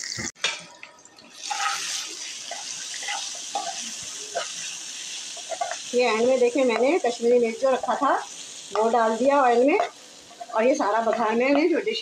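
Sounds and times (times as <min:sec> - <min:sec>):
oil sizzling in a frying pan: 0:00.0 - 0:12.0
spoon stirring: 0:01.4 - 0:04.7.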